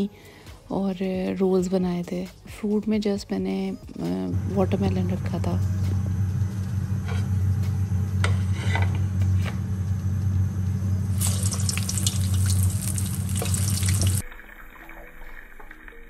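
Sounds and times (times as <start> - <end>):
soft background music: 0.0 - 16.0
steady low hum: 4.2 - 14.2
oil sizzling in frying pan: 11.1 - 16.0.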